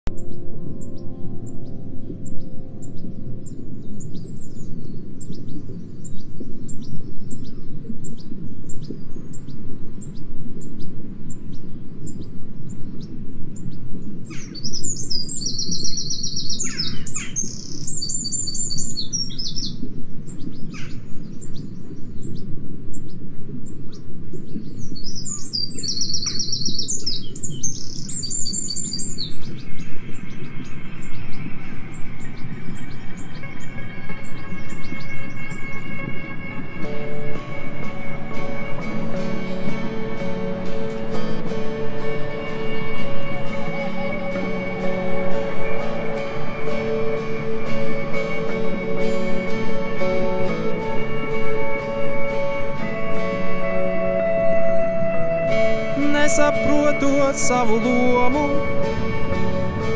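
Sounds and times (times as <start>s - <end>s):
steady low rumble: 0.1s - 15.9s, 27.0s - 48.1s, 58.0s - 59.9s
songbirds chirping and trilling: 0.1s - 59.9s.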